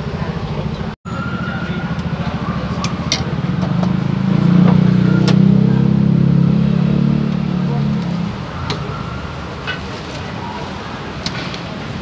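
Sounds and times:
vehicle engine running at low revs: 1.8 - 9.6.

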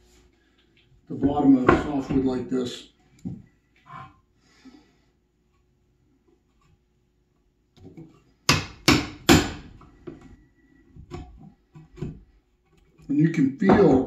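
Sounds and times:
hammer striking chisel handle: 8.5 - 9.6.

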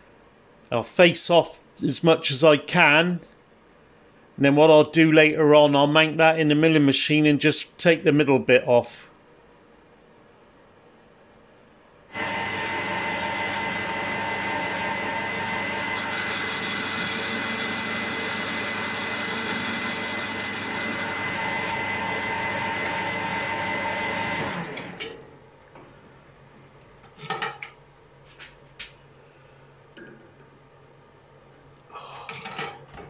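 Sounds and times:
lathe winding down: 12.1 - 25.0
metal lathe running: 12.2 - 25.0.

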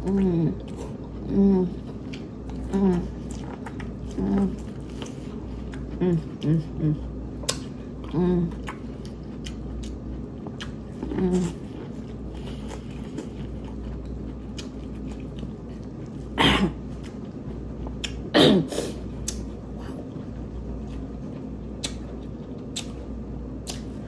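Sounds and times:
chewing corn on the cob: 0.0 - 24.0
wet mouth clicks: 19.2 - 19.5, 21.8 - 22.0, 22.7 - 23.0.

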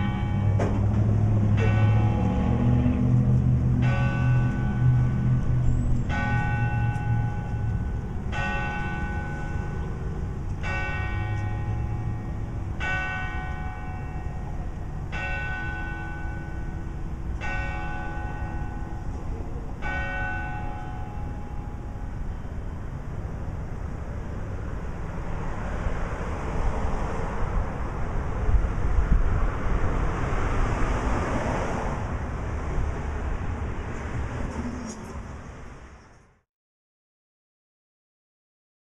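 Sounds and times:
clock-tower bell striking: 0.0 - 22.8.

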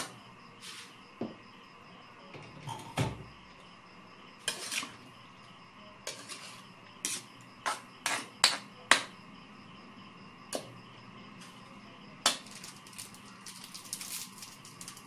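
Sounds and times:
metal spatula scraping a wok: 4.4 - 5.1, 6.0 - 8.6.

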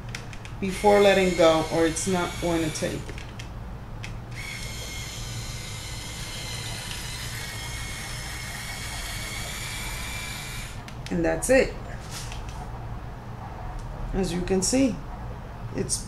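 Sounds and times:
hair iron motor whine: 0.6 - 3.3, 4.3 - 11.0.

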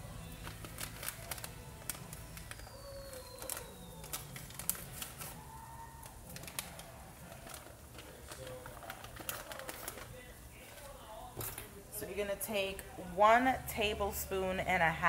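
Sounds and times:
paper packet crinkling and tearing: 0.1 - 11.8.

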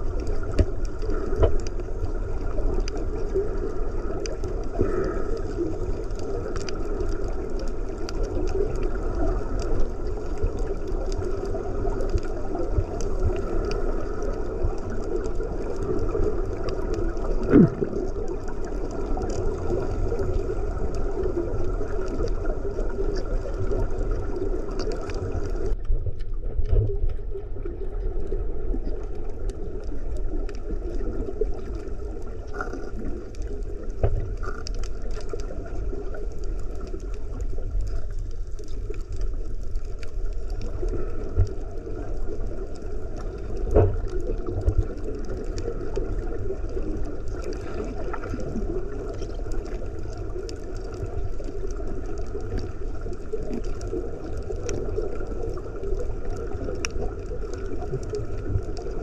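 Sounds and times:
faint underwater clicks: 0.0 - 59.0
underwater rush of moving water: 0.0 - 59.0
underwater knocks: 17.4 - 18.1.

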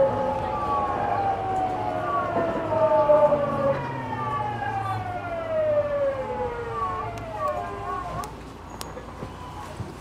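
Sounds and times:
low rumble of running train: 0.0 - 10.0.

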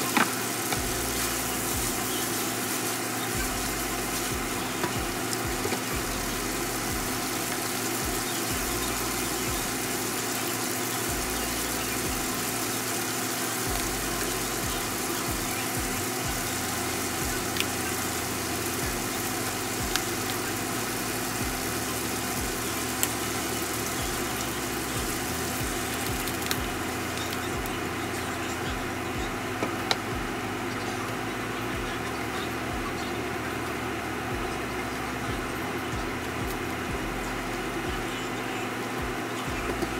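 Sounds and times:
food sizzling in frying pan: 0.0 - 30.4.

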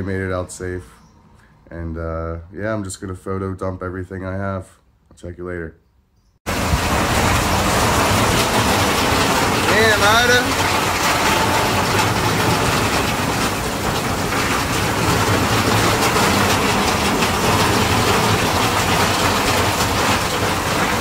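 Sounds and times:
floodwater rushing: 6.5 - 21.0
heavy rain: 6.5 - 21.0.

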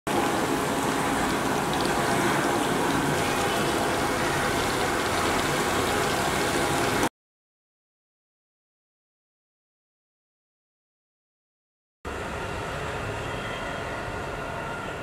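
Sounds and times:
food deep-frying in hot oil: 0.1 - 7.1.

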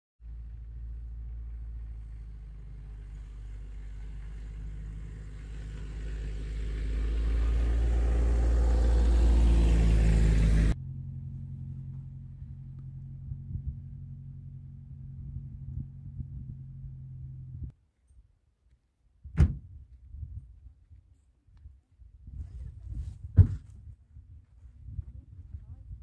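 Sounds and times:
low hum: 0.2 - 17.7
car engine rumble: 0.2 - 17.8.

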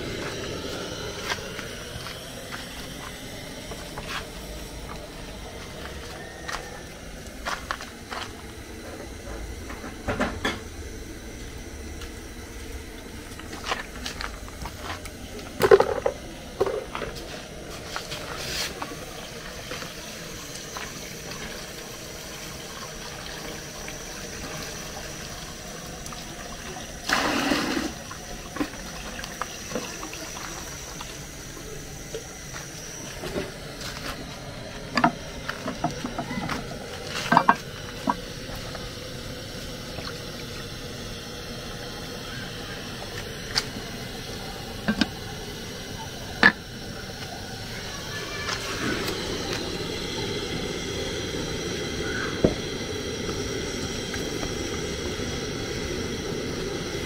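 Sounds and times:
pots and utensils clinking: 8.9 - 10.7, 34.9 - 38.8.

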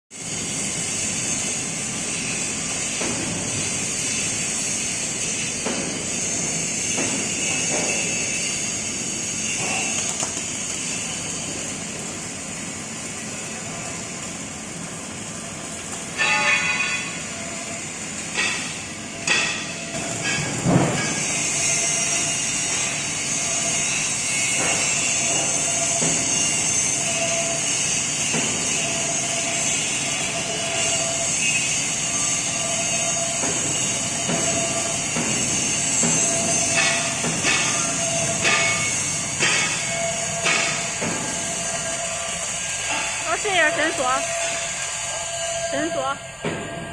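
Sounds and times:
welding hiss: 0.2 - 46.7
metallic knocks and clanks: 33.4 - 41.5.

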